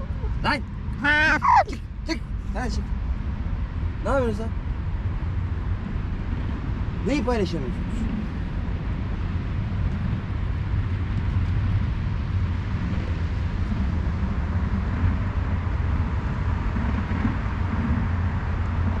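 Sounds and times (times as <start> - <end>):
low outdoor rumble: 0.0 - 19.0.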